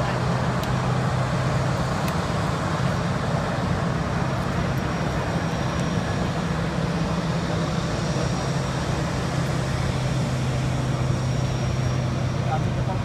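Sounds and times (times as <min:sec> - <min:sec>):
faint high whine: 0:00.0 - 0:13.0
jet engines roaring: 0:00.0 - 0:13.0.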